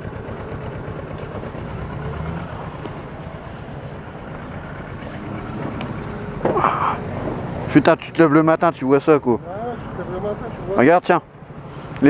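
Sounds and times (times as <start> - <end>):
motorcycle engine idling: 0.0 - 7.0.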